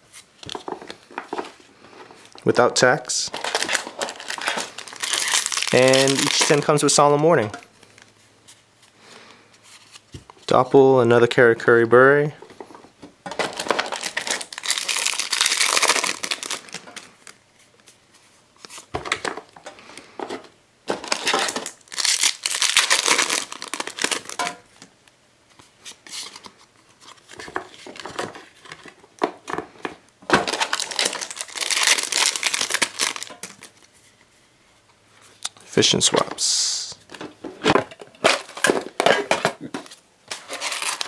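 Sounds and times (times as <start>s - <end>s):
foil wrappers crinkling and tearing: 3.3s - 7.2s, 13.4s - 17.4s, 20.9s - 24.8s, 25.9s - 29.1s, 30.3s - 33.9s, 38.2s - 41.0s.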